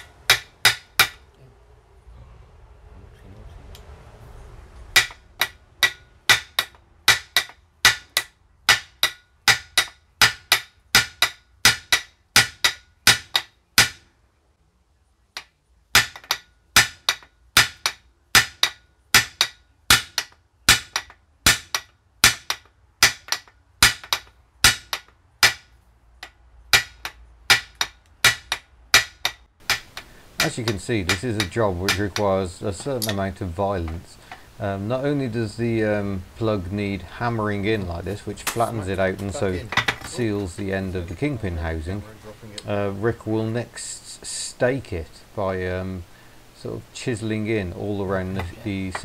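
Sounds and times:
hammer striking metal: 0.0 - 1.3, 4.9 - 14.1, 15.4 - 34.0.

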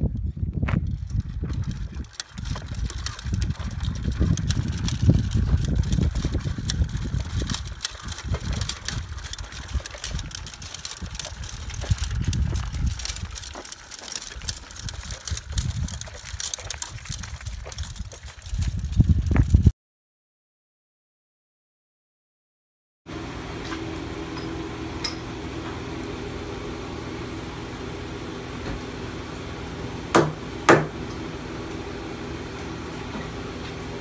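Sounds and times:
low uneven rumble: 0.0 - 19.3
metal legs clattering on asphalt: 0.7 - 19.6.

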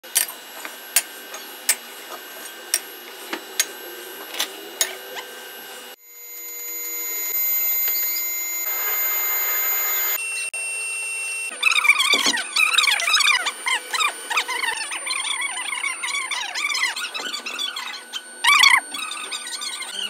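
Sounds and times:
furnace rushing roar: 0.0 - 6.0
mechanical hum: 0.0 - 20.0.

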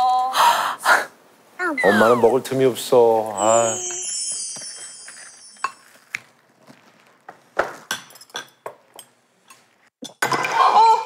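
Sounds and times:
tableware clinking: 3.9 - 6.3, 7.7 - 10.7.

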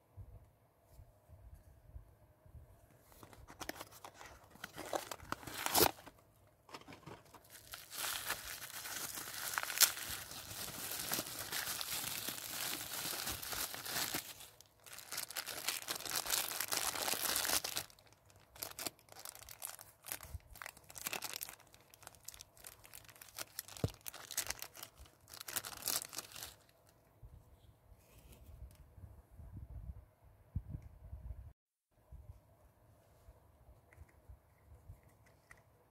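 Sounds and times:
plastic wrapping crinkling and tearing: 3.2 - 6.1, 6.7 - 26.7.

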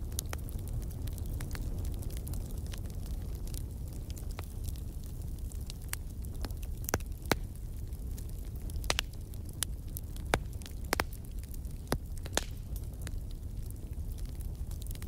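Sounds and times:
coal fire crackling and popping: 0.0 - 15.0.

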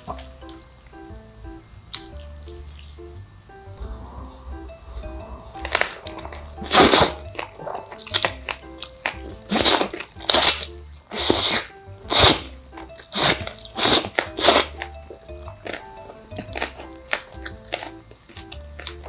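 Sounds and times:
soft background music: 0.0 - 19.0
noodle slurping and chewing: 6.6 - 19.0.

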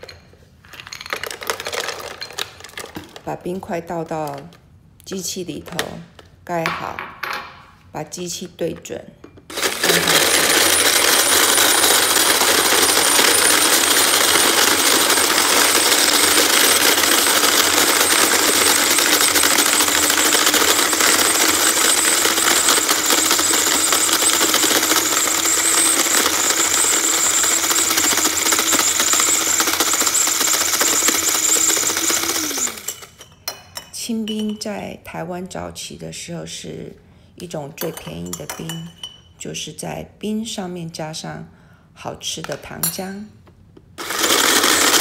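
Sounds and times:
ice shaver motor whirring: 9.5 - 33.2, 44.0 - 45.0
blade grinding ice: 9.6 - 33.1.

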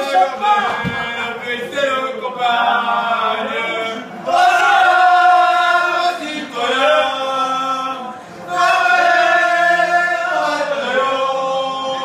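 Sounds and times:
group singing an anthem: 0.0 - 12.0.

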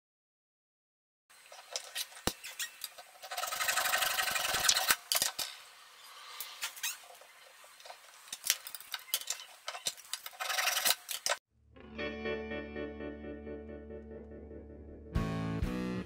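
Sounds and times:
metal strip being cut: 1.8 - 5.5, 9.3 - 11.4.

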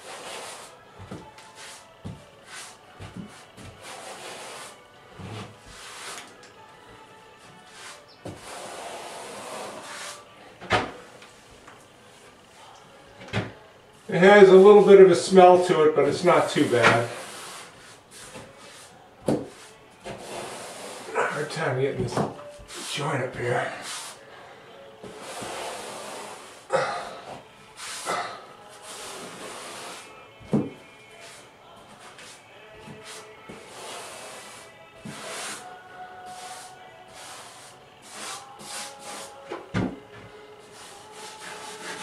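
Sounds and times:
grout float scraping tiles: 0.0 - 0.8, 2.4 - 6.4, 7.4 - 10.3, 16.4 - 22.0, 25.0 - 26.7, 28.8 - 30.6, 31.2 - 39.7, 40.6 - 42.0.

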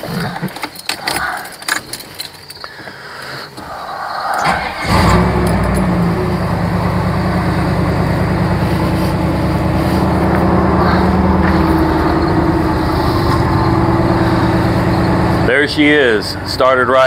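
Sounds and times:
car engine idling: 3.6 - 17.0.

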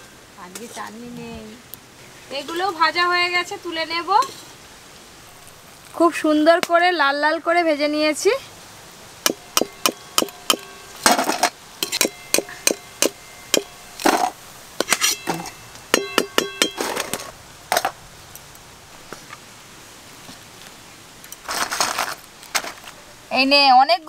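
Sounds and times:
metal plates and utensils clinking: 9.3 - 17.9.

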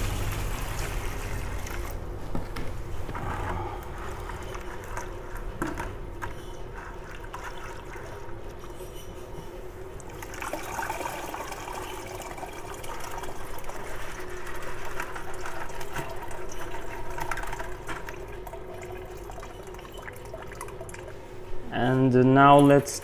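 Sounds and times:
water pouring into a colander: 0.0 - 1.9, 10.2 - 21.1.

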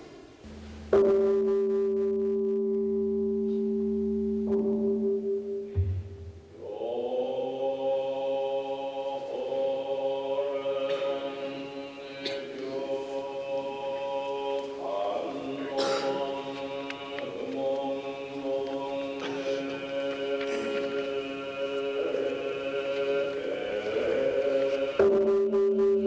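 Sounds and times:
low thump: 5.7 - 6.4
monks chanting in unison: 6.6 - 25.3.

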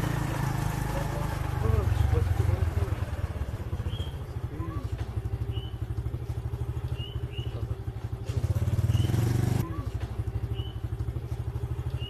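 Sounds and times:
small motorcycle engine running: 0.0 - 12.0
bird chirping: 3.7 - 4.5, 5.4 - 8.0, 8.8 - 9.4, 10.4 - 11.0, 11.8 - 12.0.

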